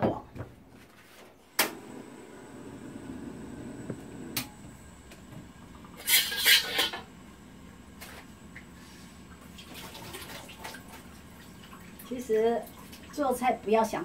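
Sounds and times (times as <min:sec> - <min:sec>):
burner ignition click: 0:01.5 - 0:01.9, 0:03.8 - 0:05.3
spatula scraping wok: 0:06.0 - 0:07.0.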